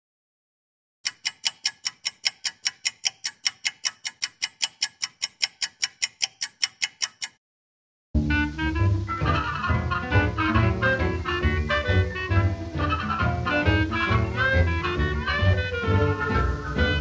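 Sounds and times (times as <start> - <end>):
stopwatch ticking: 1.0 - 7.4
swing music: 8.2 - 17.0.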